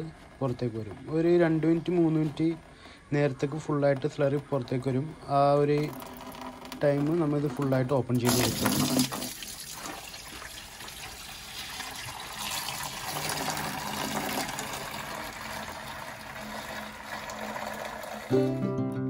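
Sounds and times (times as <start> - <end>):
slurry splashing into bucket: 8.2 - 15.4.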